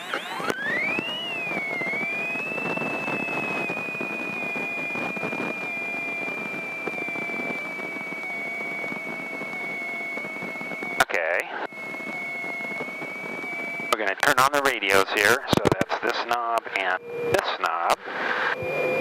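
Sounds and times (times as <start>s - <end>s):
airplane engine whine: 0.0s - 19.0s
rough mechanical noise: 0.0s - 19.0s.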